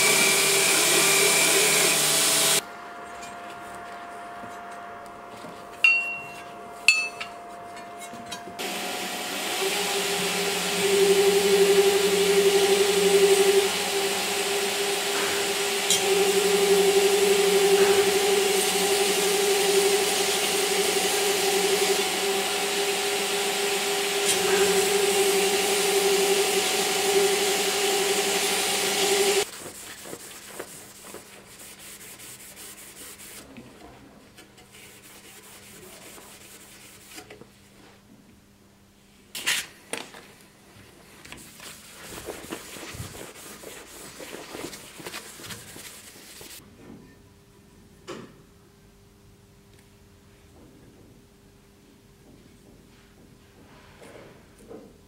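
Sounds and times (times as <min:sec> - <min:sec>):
belt grinder grinding steel: 0:08.6 - 0:29.5
blade hand-sanding rubbing: 0:08.6 - 0:33.5, 0:34.7 - 0:37.3, 0:41.5 - 0:46.6.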